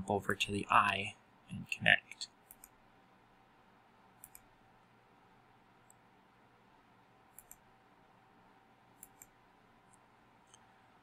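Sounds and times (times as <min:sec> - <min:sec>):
faint room hum: 0:00.0 - 0:11.0
computer mouse clicking: 0:02.2 - 0:02.8, 0:04.2 - 0:04.6, 0:05.8 - 0:06.0, 0:07.3 - 0:07.7, 0:08.9 - 0:10.7.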